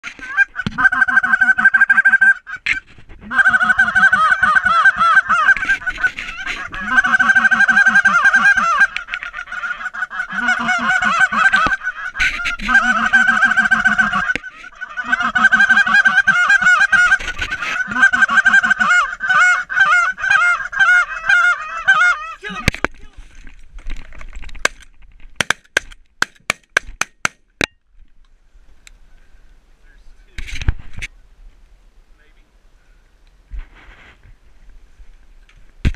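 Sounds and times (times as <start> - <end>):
geese honking: 0.0 - 22.8.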